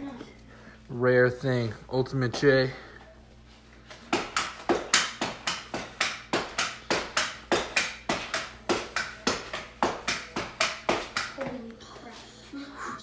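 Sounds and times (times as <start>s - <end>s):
pogo stick thumping: 3.9s - 11.7s.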